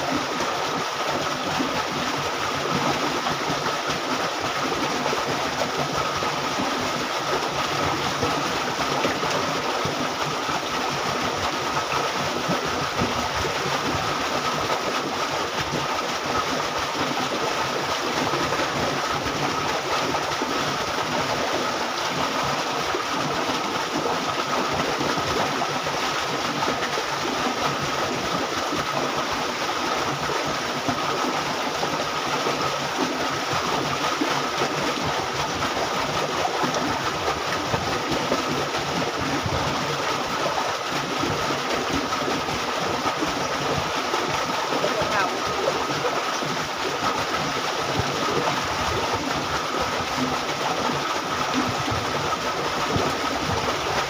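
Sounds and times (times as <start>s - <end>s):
water rushing through canal: 0.0s - 54.0s.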